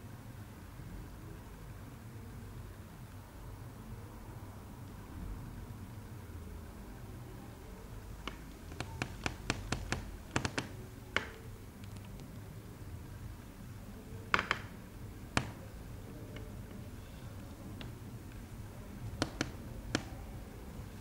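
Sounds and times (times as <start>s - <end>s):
fingertips tapping on hard floor: 8.2s - 11.4s, 14.3s - 16.8s, 19.1s - 20.2s.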